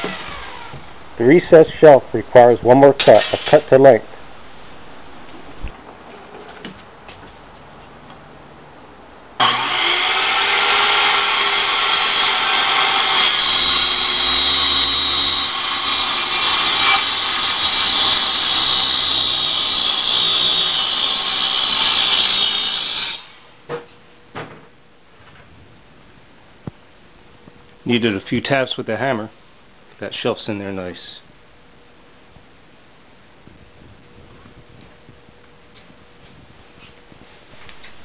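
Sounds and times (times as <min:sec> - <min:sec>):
circular saw cutting wood: 0:00.0 - 0:00.9, 0:09.4 - 0:23.4.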